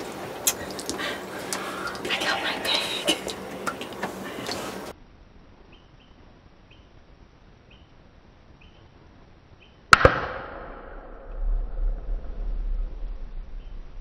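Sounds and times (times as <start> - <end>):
gunshot with echo: 9.9 - 11.7.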